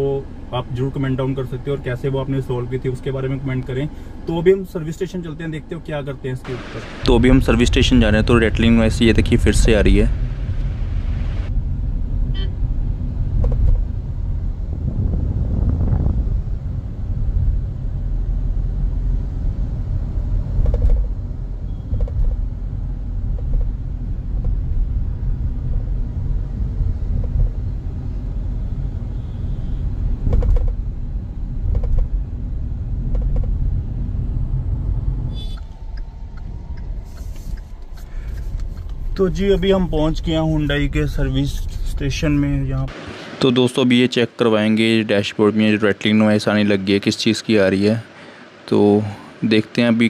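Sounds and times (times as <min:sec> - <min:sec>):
low road rumble: 0:00.0 - 0:50.0.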